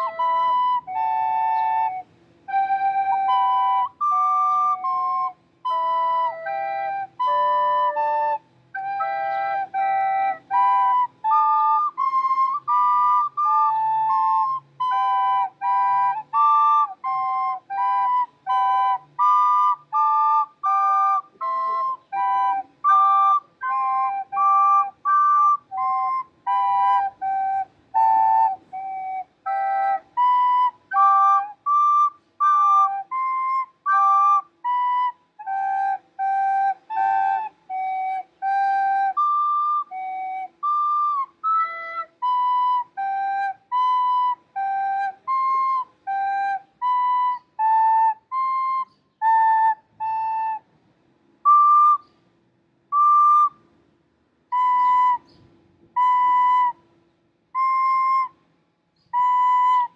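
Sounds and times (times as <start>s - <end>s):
recorders playing a tune: 0.0s - 59.9s.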